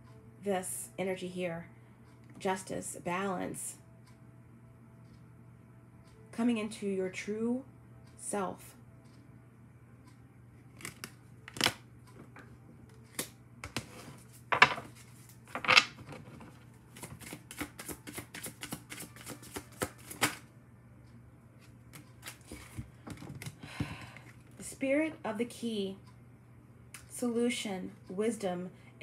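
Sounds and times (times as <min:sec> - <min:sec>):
card slaps and taps: 0:17.0 - 0:20.4.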